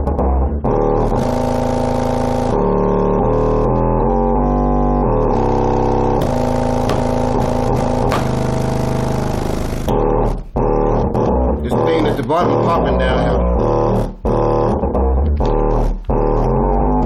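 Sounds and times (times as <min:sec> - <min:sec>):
subwoofer playing bass-heavy music: 0:00.0 - 0:17.0.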